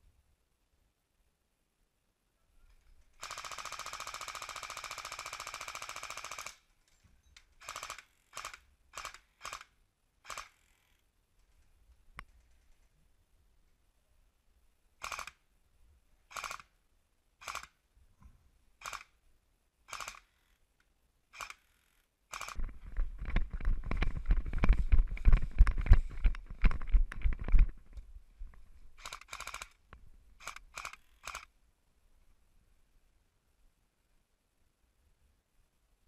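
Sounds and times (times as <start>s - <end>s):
running footsteps rumbling: 22.6s - 29.0s.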